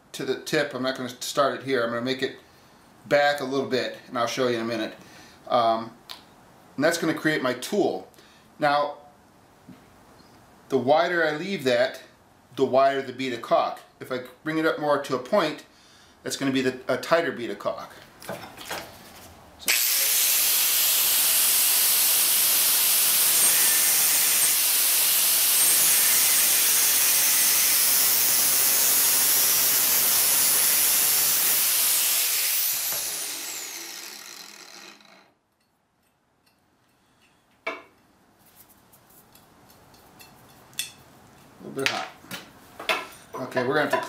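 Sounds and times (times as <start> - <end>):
grinder disc spinning down: 19.7 - 35.3
angle grinder cutting pipe: 19.7 - 35.4.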